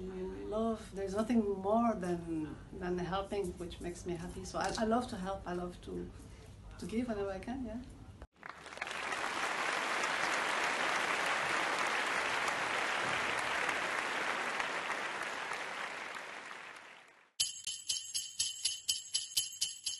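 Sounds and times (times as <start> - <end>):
applause: 8.3 - 17.4
jingle bells shaken: 17.4 - 19.9.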